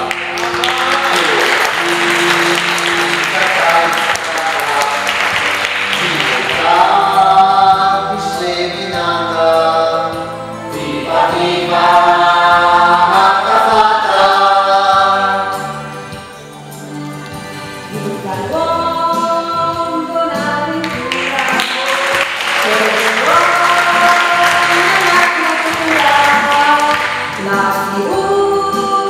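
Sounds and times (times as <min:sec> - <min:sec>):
applause: 0:00.0 - 0:06.8, 0:20.8 - 0:27.4
group singing in chorus: 0:00.0 - 0:16.1, 0:17.9 - 0:29.0.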